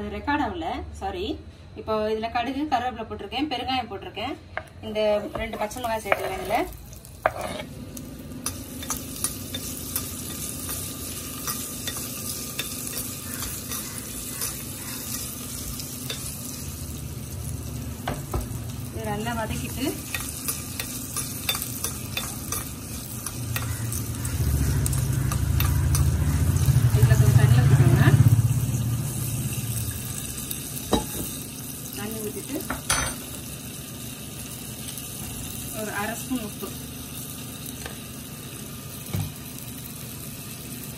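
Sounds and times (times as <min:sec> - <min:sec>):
chillies frying in hot oil: 0:05.0 - 0:40.9
spoon scraping a pan: 0:05.3 - 0:07.7, 0:08.4 - 0:16.4, 0:20.0 - 0:26.2.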